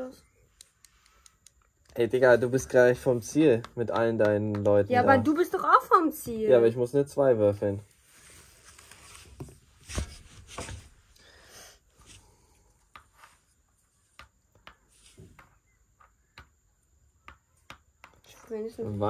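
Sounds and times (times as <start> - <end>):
game pieces clicking on board: 0.7 - 4.9, 17.2 - 18.4.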